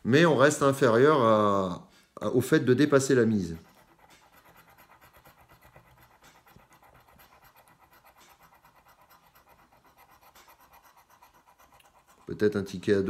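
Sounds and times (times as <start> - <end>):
scratch card scraping: 3.3 - 12.5.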